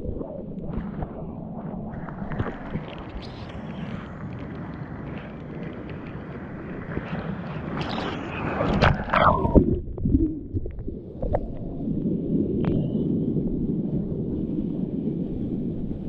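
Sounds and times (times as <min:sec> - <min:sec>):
sea surf rushing and splashing: 0:00.7 - 0:10.4.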